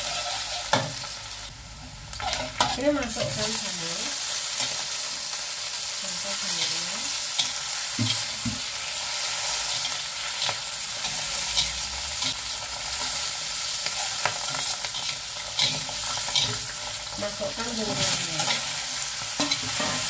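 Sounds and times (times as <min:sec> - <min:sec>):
metal spatula scraping a wok: 0:00.0 - 0:01.0, 0:02.2 - 0:03.6, 0:06.6 - 0:16.9, 0:17.6 - 0:20.0
food sizzling in hot oil: 0:00.0 - 0:20.0.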